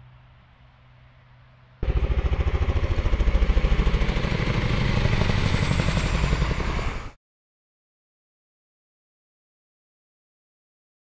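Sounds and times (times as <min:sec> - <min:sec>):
engine running with pulsing beat: 0:01.8 - 0:07.2.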